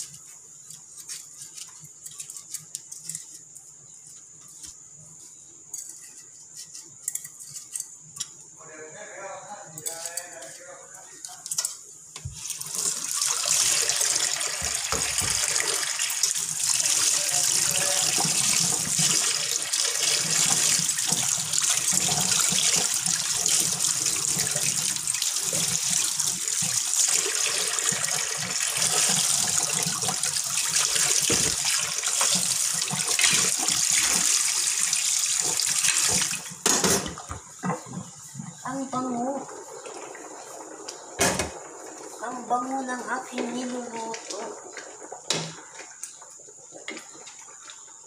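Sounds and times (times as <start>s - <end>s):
tap water running: 11.5s - 48.0s.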